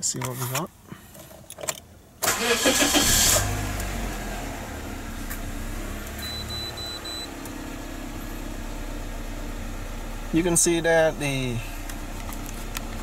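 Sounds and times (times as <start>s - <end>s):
car engine starter cranking: 1.6s - 4.0s
car engine idling: 2.3s - 13.0s
short high beeps: 6.2s - 7.3s.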